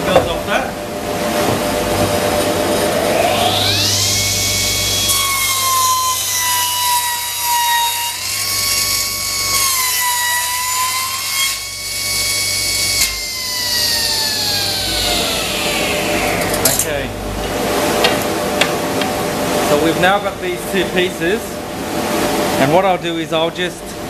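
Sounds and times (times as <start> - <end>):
table saw ripping wood: 2.4 - 17.0.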